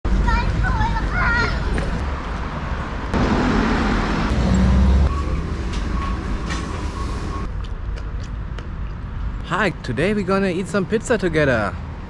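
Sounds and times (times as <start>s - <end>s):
heavy vehicle passing: 0.1s - 7.5s.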